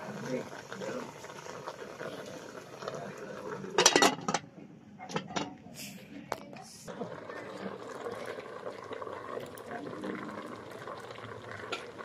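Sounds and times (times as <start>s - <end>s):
metal lid clattering on pot: 3.8s - 4.5s, 5.1s - 5.6s.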